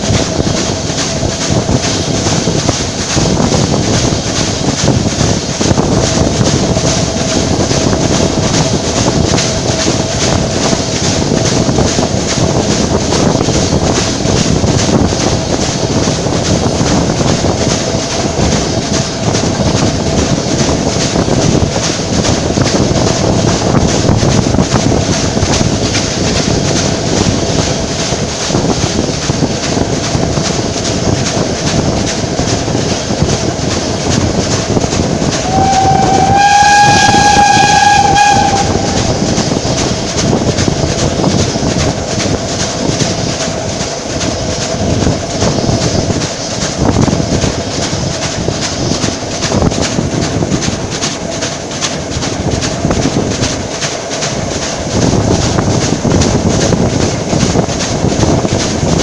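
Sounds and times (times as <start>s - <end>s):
train running over rails: 0.0s - 59.0s
wind rushing past window: 0.0s - 59.0s
steam locomotive whistle: 35.4s - 39.5s.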